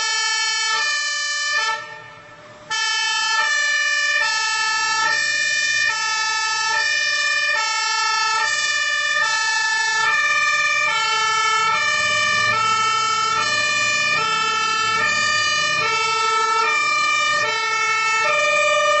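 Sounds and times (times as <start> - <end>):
fire engine two-tone siren: 0.0 - 19.0
truck engine rumble: 0.0 - 19.0.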